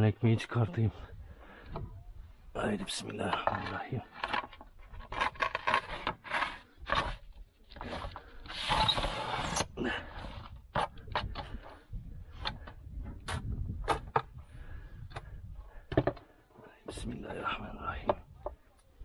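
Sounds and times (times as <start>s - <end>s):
bread scraping in stone oven: 4.9s - 10.5s.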